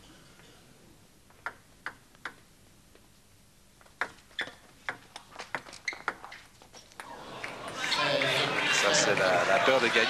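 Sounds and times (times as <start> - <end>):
table tennis ball bouncing: 1.4 - 2.4, 3.9 - 6.4
table tennis rally clicks: 3.8 - 7.8.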